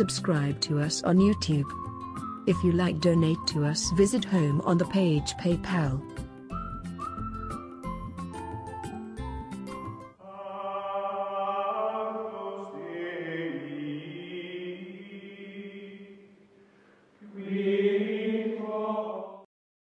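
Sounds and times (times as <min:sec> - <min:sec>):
choir-like held voices: 0:10.2 - 0:16.3, 0:17.2 - 0:19.5.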